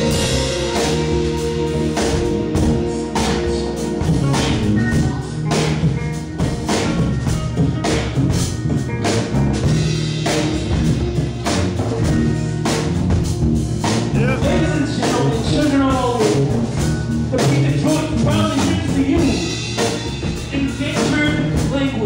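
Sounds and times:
electric bass line: 0.0 - 22.0
jazz-funk band playing: 0.0 - 22.0
person speaking over band: 2.7 - 6.0, 14.1 - 16.7, 17.3 - 22.0.

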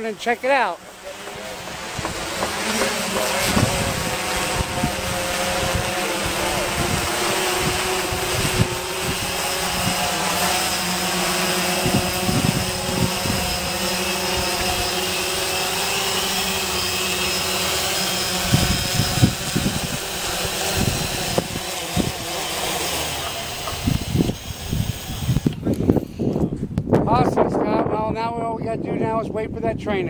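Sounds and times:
drone propellers whirring: 0.0 - 26.6
wind buffeting microphone: 1.4 - 30.0.

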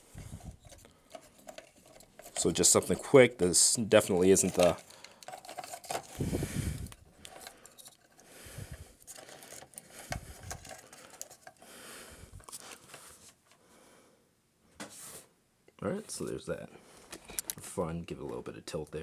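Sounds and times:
plastic parts clicking and rubbing: 0.0 - 3.3, 3.9 - 8.3, 9.0 - 11.7, 12.3 - 13.6, 17.1 - 17.8.

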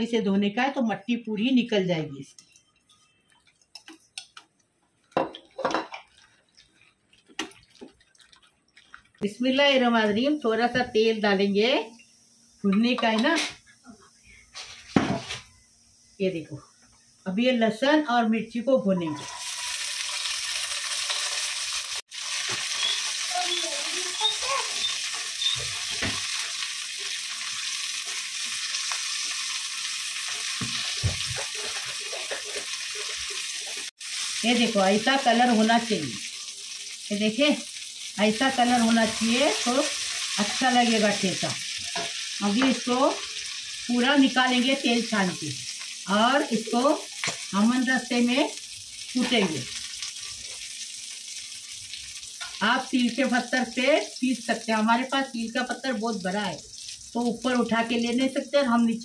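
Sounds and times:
hands rinsing fish: 6.1 - 9.2
garlic sizzling in hot oil: 19.2 - 59.0
spoon knocking a pan: 25.4 - 26.6, 30.3 - 33.8.

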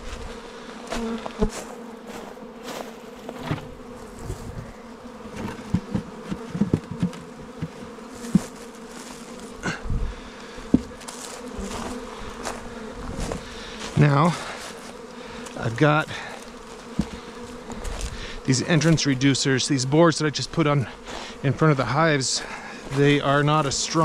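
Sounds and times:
honeybees buzzing: 0.0 - 24.0
wooden hive covers knocking: 5.3 - 8.7, 10.7 - 12.6, 16.9 - 17.4.

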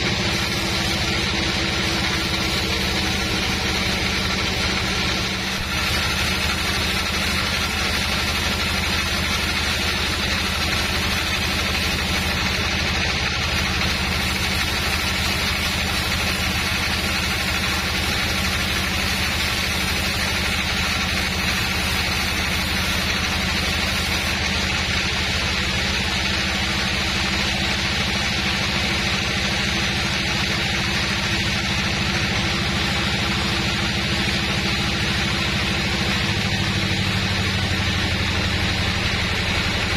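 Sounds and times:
band saw cutting wood: 0.0 - 39.9.

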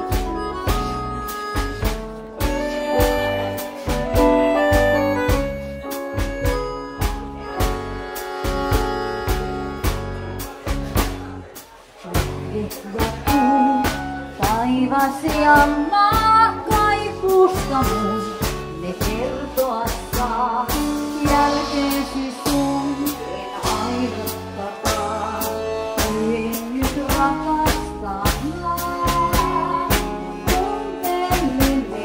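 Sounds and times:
live band playing tango: 0.0 - 32.0
woman singing: 12.1 - 32.0.

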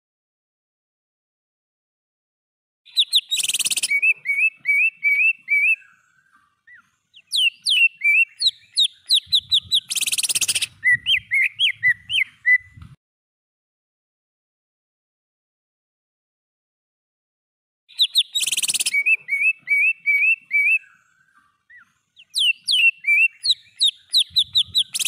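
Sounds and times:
bird whistling song: 2.9 - 13.0, 17.9 - 25.0.

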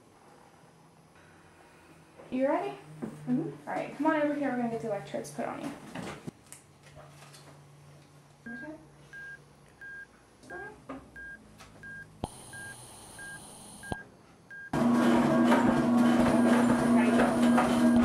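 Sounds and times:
heart monitor beeping: 8.5 - 14.8
hiss with high whine: 12.2 - 14.0.

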